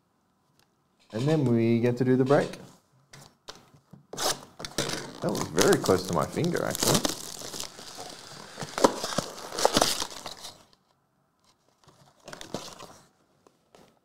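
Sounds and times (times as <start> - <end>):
cardboard box opening: 4.2 - 10.7, 11.7 - 13.1
plastic shrink wrap crinkling: 4.6 - 10.8.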